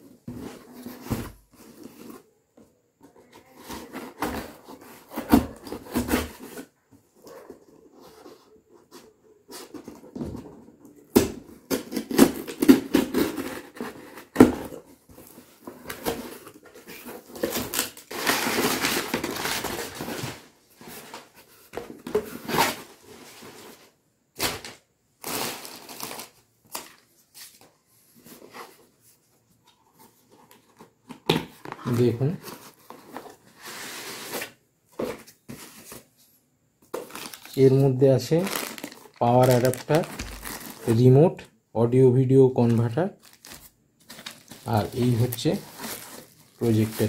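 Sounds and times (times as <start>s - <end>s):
packing paper rustling: 15.2s - 27.6s, 36.9s - 41.2s, 42.6s - 47.0s.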